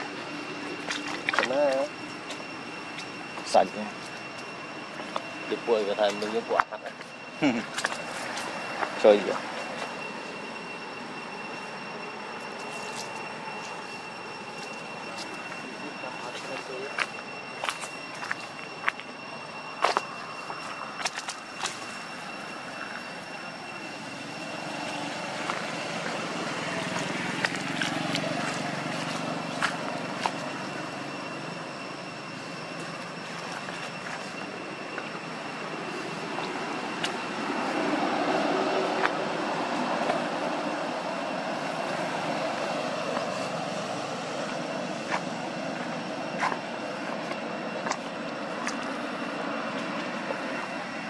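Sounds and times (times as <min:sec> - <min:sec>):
distant road traffic rumble: 0:00.0 - 0:51.0
steady rushing background noise: 0:00.0 - 0:51.0
footsteps on stone paving: 0:17.0 - 0:19.1, 0:26.8 - 0:30.7.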